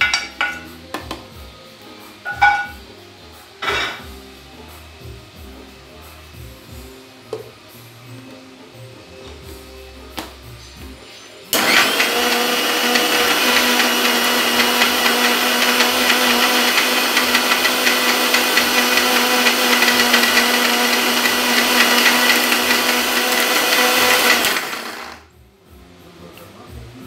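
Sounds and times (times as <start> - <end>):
mixer grinder running: 11.5 - 25.3.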